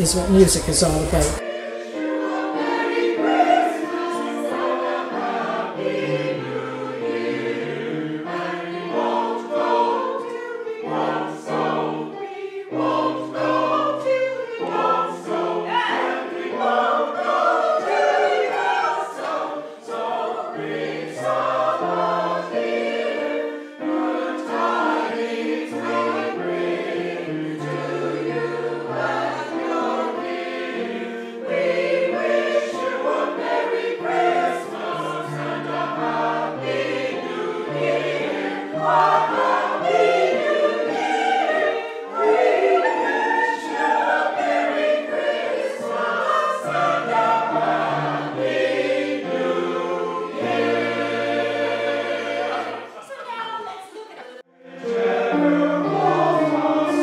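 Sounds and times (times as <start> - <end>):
mixed choir singing a carol: 0.0 - 57.0.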